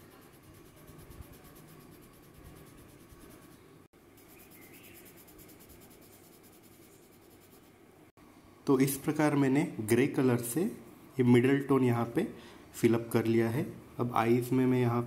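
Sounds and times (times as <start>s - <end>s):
pencil scratching on paper: 0.0s - 7.7s.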